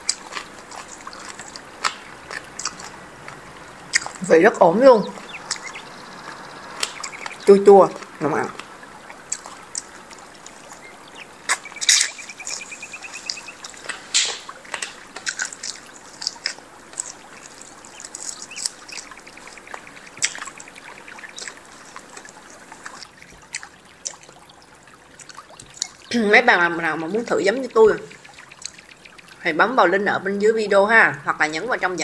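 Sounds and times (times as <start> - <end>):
wet chewing and sucking: 0.0 - 4.3, 5.0 - 26.1, 27.9 - 29.4
rapid even ticking: 0.0 - 32.0.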